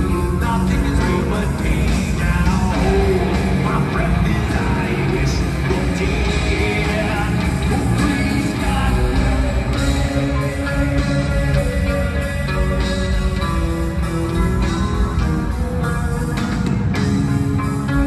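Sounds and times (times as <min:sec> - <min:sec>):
live heavy metal band: 0:00.0 - 0:18.0.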